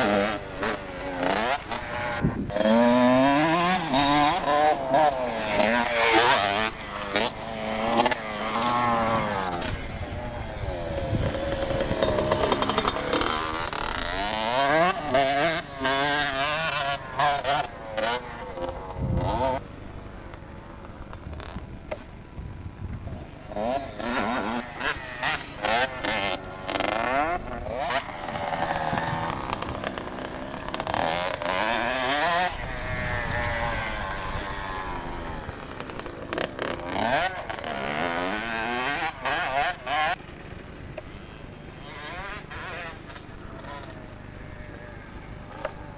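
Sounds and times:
motorbike engine revving: 0.0 - 45.9.

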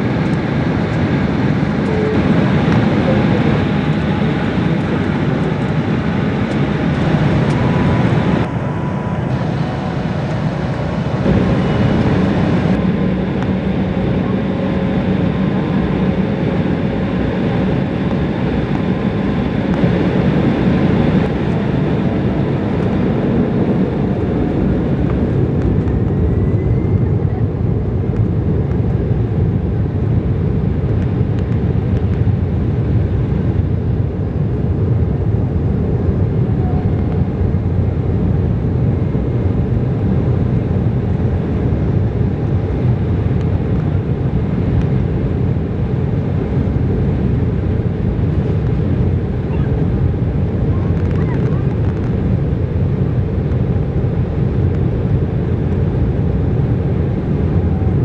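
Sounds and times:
jet engines rumbling in cabin: 0.0 - 58.0
faint rising whine: 1.8 - 28.0.

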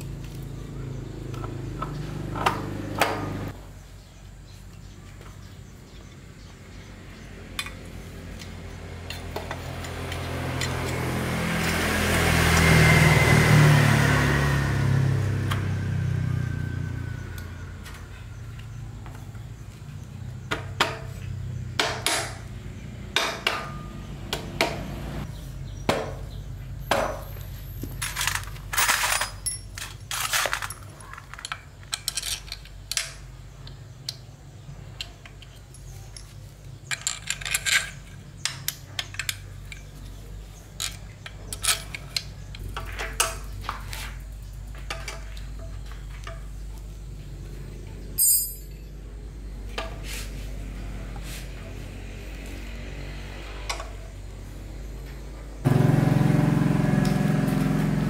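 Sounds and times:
metal tools clinking: 27.2 - 33.3, 35.0 - 43.6, 48.2 - 49.0.

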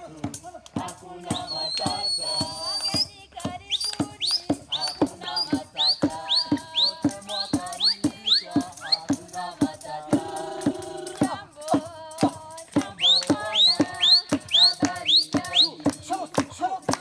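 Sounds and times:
people singing together: 0.0 - 17.0
percussion beats: 0.0 - 17.0
high whistle-like chirps: 1.2 - 9.5, 12.8 - 16.0.

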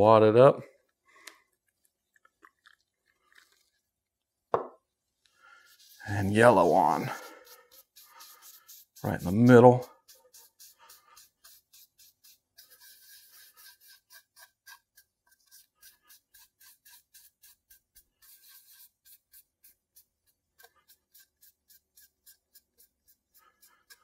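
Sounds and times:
rag scrubbing on wood: 5.6 - 24.0.

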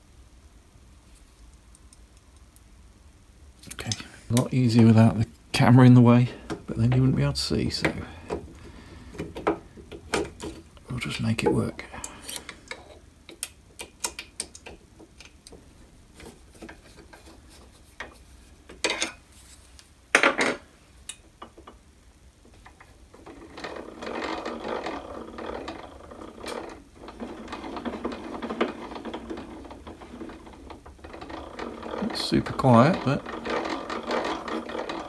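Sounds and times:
rough gear noise: 23.2 - 35.0.

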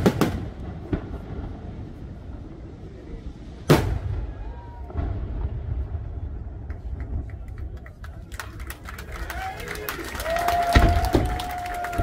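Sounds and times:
firework sharp cracks: 0.0 - 7.8, 10.4 - 12.0
low rolling rumble: 0.0 - 12.0.

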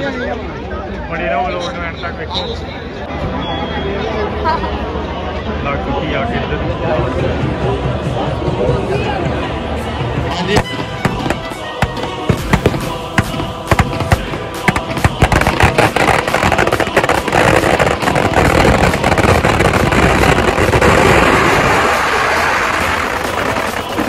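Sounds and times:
firecrackers banging and crackling: 10.5 - 24.0.

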